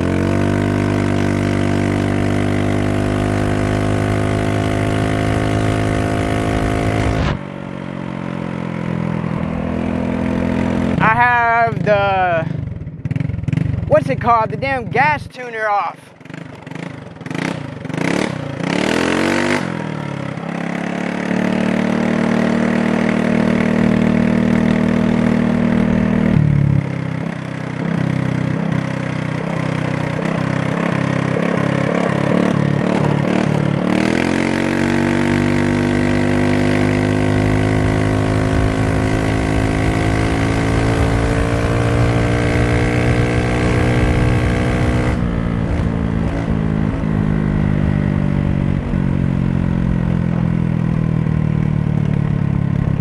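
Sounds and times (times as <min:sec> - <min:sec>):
scooter engine revving: 0:00.0 - 0:14.8, 0:16.0 - 0:53.0
wind rushing over microphone: 0:05.2 - 0:07.8, 0:37.1 - 0:49.4.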